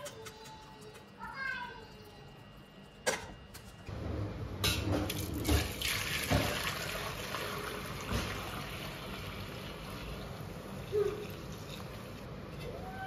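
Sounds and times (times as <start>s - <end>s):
liquid pouring into a pot: 5.1s - 12.0s.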